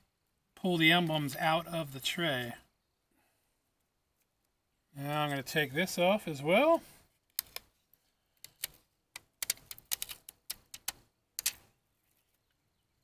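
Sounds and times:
adhesive liner peeling crackles: 8.4 - 11.6.

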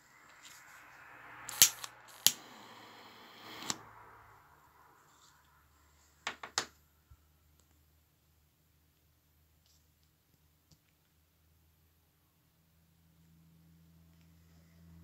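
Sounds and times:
lighter clicks: 1.5 - 2.4
faint lighter hiss: 1.5 - 3.8.

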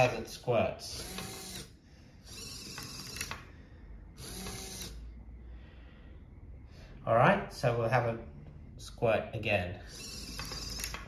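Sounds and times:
servos whirring and clicking: 0.8 - 3.5, 4.1 - 5.0, 9.9 - 11.0.

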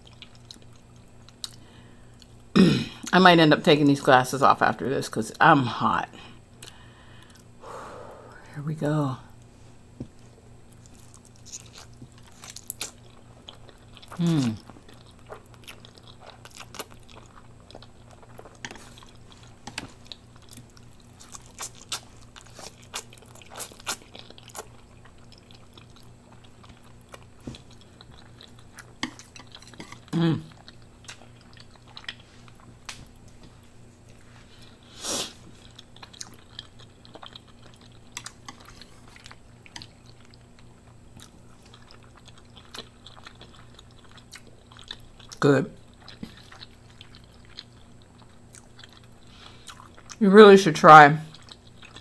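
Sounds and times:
chewing noodles: 10.2 - 33.4, 35.4 - 50.2, 51.3 - 52.0.

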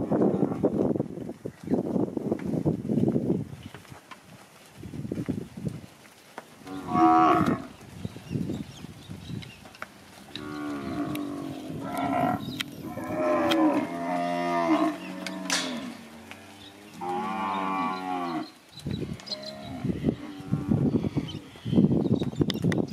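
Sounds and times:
cattle mooing: 6.6 - 7.7, 10.3 - 18.5.

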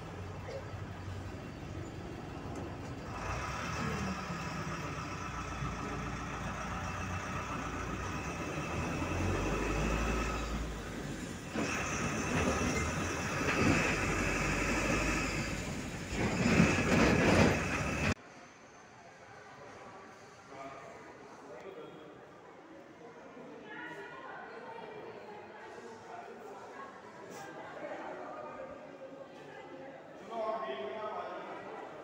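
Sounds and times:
bus engine and road noise: 0.0 - 18.2.

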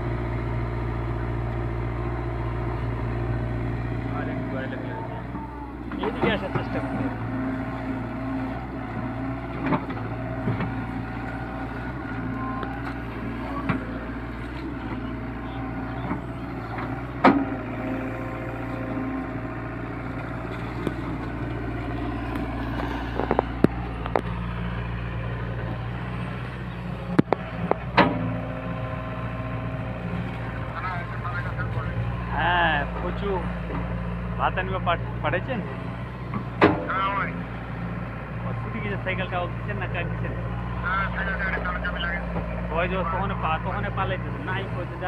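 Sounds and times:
excavator diesel engine running: 0.0 - 45.0
sharp knocks from excavator bucket: 27.2 - 28.3, 36.6 - 36.9.

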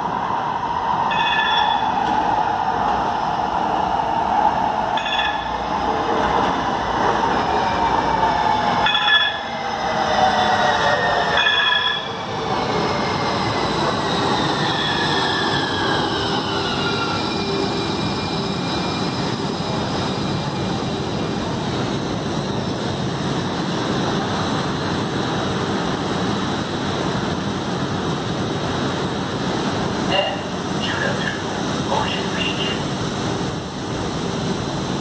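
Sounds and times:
train cars rumbling: 1.0 - 35.0
train brakes whining: 8.8 - 20.7.

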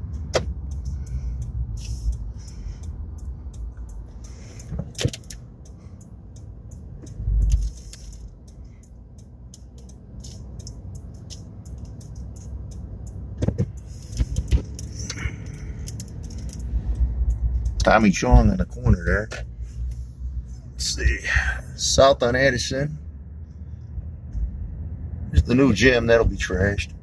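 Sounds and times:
small clicks and rattles: 0.0 - 17.9
car cabin low rumble: 0.0 - 27.0.

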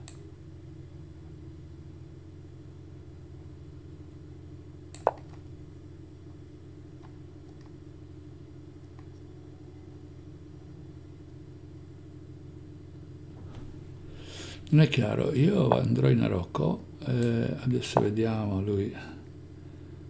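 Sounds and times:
sharp click: 0.0 - 0.2
steady low hum: 0.0 - 20.0.

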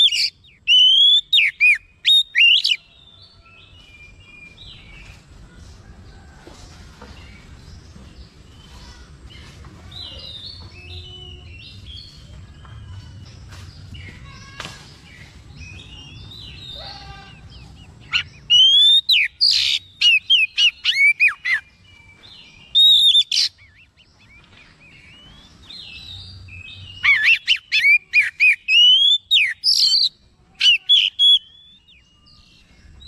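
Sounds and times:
bird whistling song: 0.0 - 2.8, 18.0 - 32.7.

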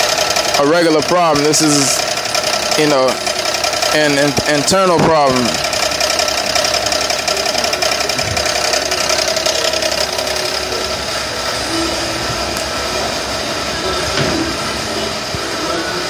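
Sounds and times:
rapid knock inside engine: 0.0 - 11.2
engine running: 0.0 - 16.0.

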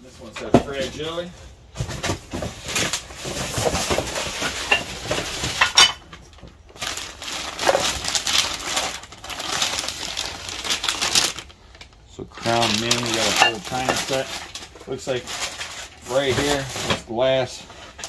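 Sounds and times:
packing material rustling: 1.8 - 18.0
dishes clinking: 5.6 - 6.0.

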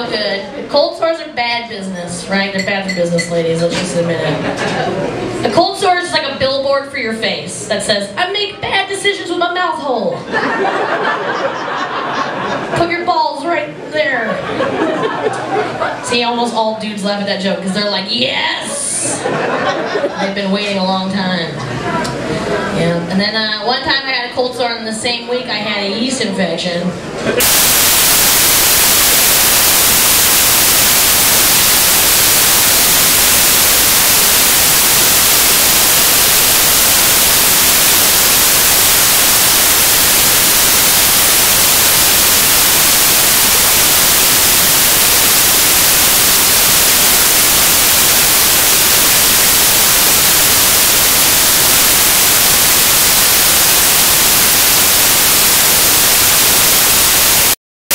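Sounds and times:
loud static hiss: 0.0 - 2.5, 10.3 - 12.8, 19.0 - 20.0, 26.9 - 57.9.

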